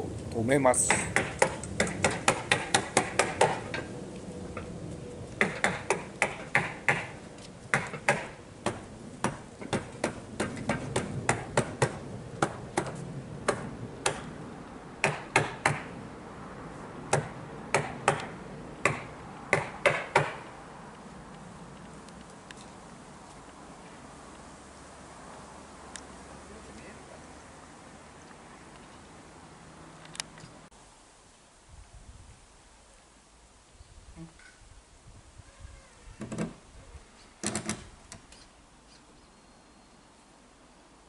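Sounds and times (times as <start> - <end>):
hammer tacker stapling: 37.4 - 38.2.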